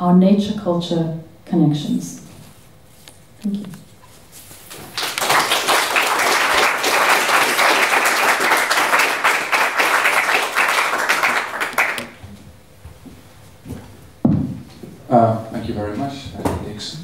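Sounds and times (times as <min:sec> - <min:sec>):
audience applauding: 0:04.7 - 0:12.2.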